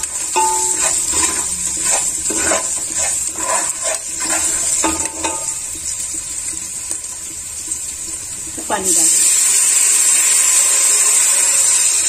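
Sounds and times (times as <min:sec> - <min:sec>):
spoon scraping a pot: 0:00.0 - 0:05.6
oil sizzling in a pot: 0:00.0 - 0:12.0.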